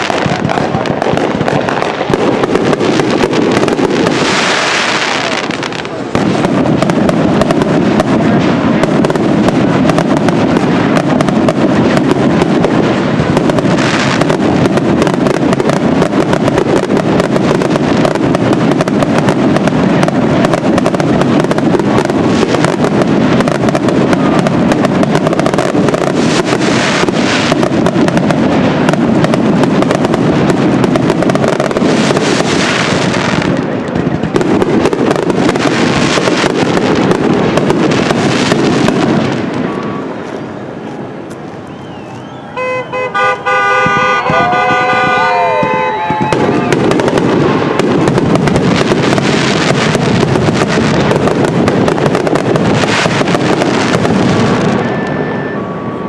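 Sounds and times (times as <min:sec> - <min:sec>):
rapid fireworks bangs and crackles: 0:00.0 - 0:56.0.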